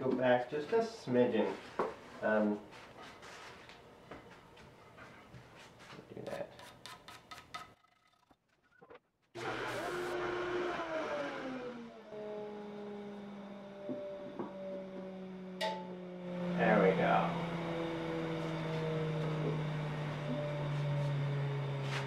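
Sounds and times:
belt sander motor winding down: 9.4 - 22.0
steady machine hum: 12.7 - 22.0.

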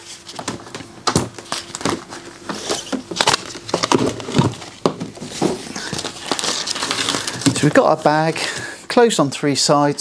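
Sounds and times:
plastic bag rustling: 1.4 - 8.9.

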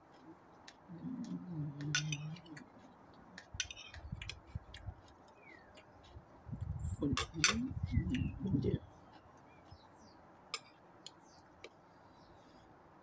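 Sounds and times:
chewing: 0.0 - 6.7
faint bird chirping: 0.1 - 3.2, 5.2 - 13.0
person humming: 0.9 - 2.7
cutlery clinking on bowl: 1.9 - 2.5, 3.5 - 4.0.

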